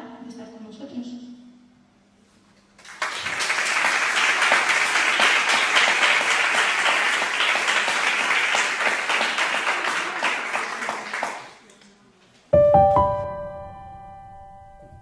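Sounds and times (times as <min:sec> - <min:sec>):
audience applauding: 0:02.8 - 0:11.6.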